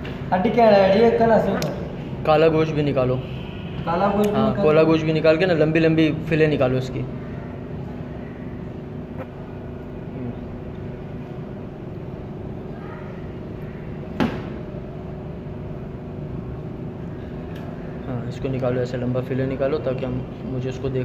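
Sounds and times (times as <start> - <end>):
machine hum: 0.0 - 21.0
sharp knock: 14.2 - 14.6.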